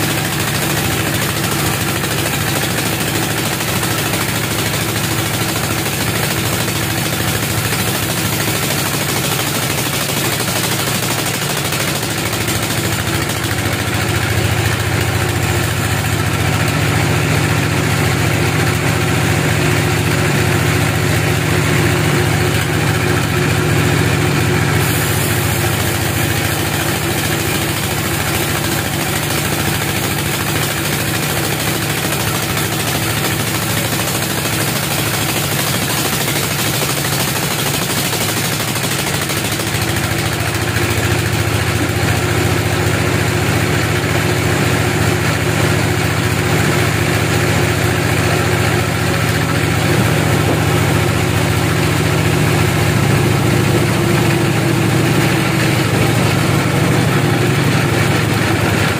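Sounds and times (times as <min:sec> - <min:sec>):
bandsaw machine drone: 0:00.0 - 0:58.9
saw hissing through log: 0:24.7 - 0:40.3.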